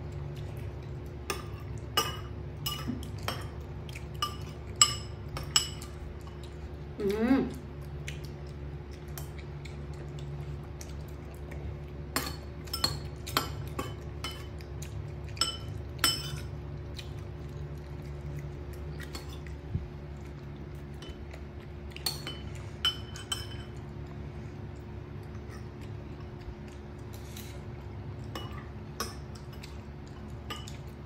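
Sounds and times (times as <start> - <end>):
steady low hum: 0.0 - 31.0
metal spoon clinking on bowl: 15.4 - 16.5, 22.0 - 23.8.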